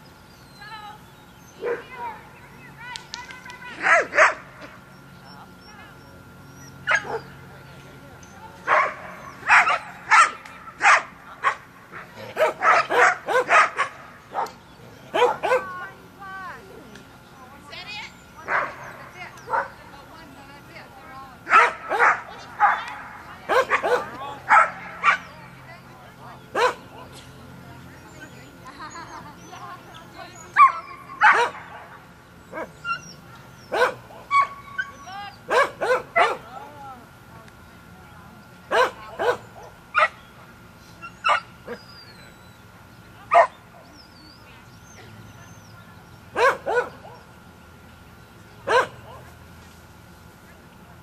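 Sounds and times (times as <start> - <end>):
dog barking: 1.6 - 1.9, 3.8 - 4.4, 6.9 - 7.3, 8.7 - 11.6, 12.4 - 14.5, 15.1 - 15.8, 21.5 - 25.3, 26.6 - 27.1, 30.6 - 31.6, 33.7 - 36.5, 38.7 - 40.2, 43.3 - 43.6, 46.4 - 47.2, 48.7 - 49.3
dog yelping: 3.6 - 4.4, 5.3 - 7.4, 8.7 - 11.6, 12.4 - 14.5, 30.4 - 31.7, 32.5 - 36.4.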